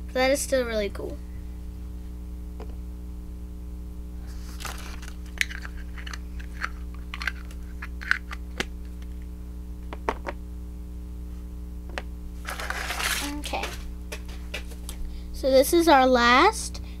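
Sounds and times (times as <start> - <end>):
low electrical hum: 0.0 - 17.0
packaging crinkling: 4.3 - 9.2, 12.4 - 15.0.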